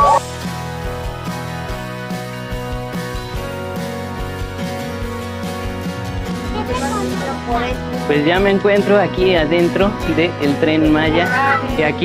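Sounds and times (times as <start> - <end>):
music with steady beat: 0.0 - 12.0.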